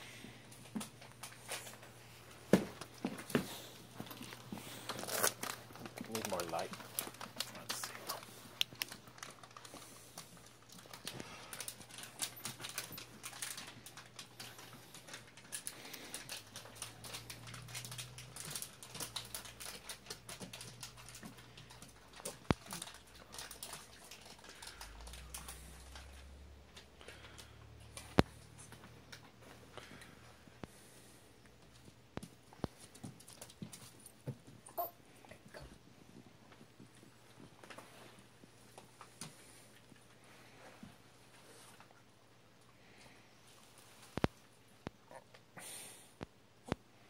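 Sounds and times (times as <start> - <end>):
dog claws clicking on wooden floor: 6.6 - 26.2.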